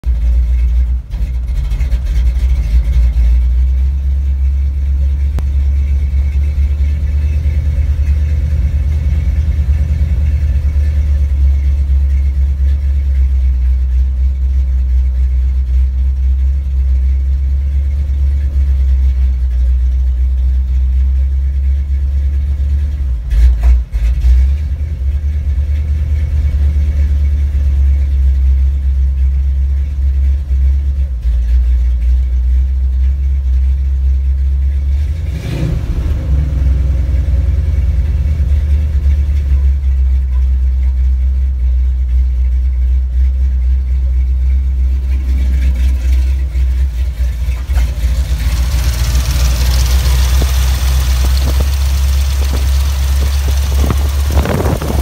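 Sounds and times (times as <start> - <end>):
engine rumbling from inside cab: 0.0 - 55.0.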